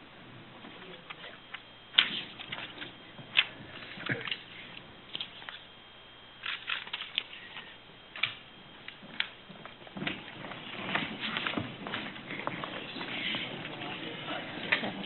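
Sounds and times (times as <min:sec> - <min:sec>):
footsteps: 0:08.9 - 0:15.0.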